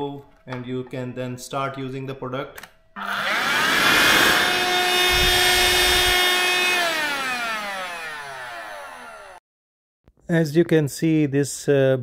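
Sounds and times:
handheld vacuum motor whine: 3.0 - 9.4.

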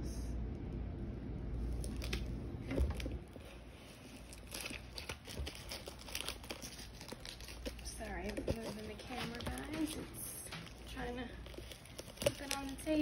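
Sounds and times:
resin pieces clicking and crinkling: 4.3 - 13.0.

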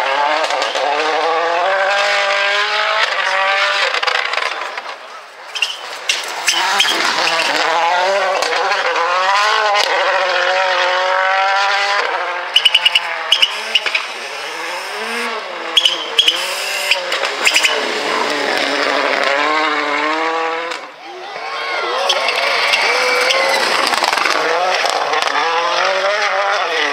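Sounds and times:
rally car engine revving: 0.0 - 21.0, 21.6 - 26.9
exhaust cracking pops: 3.8 - 9.0, 22.1 - 25.4.

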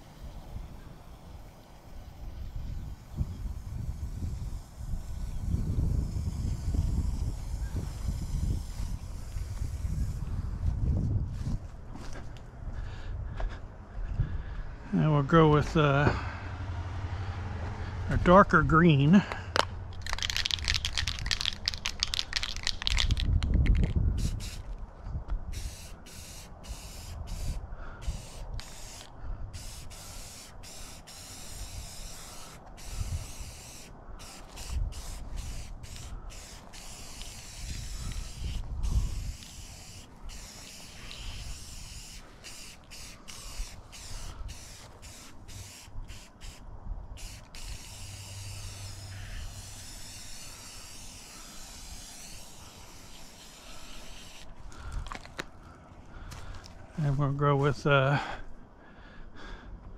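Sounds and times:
spray paint can hissing: 0.0 - 10.4, 19.9 - 24.8, 25.5 - 46.6, 47.2 - 55.4.

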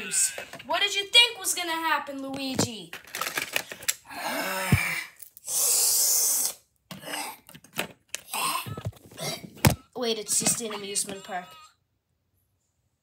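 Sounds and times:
rough breathy mouth noise: 4.2 - 7.4
loud mouth hiss: 5.4 - 6.7.

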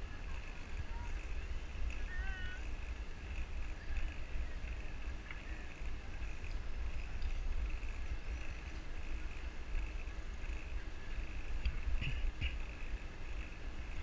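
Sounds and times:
road noise hiss: 0.0 - 14.0
wind buffeting microphone: 0.0 - 14.0.

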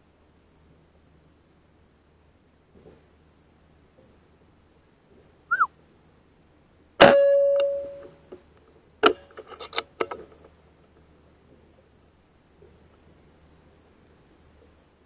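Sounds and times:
sharp ringing strike: 7.0 - 8.1.

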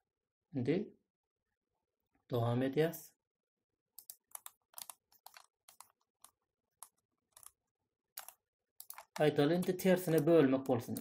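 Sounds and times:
light stylus clicks and taps: 8.2 - 11.0.

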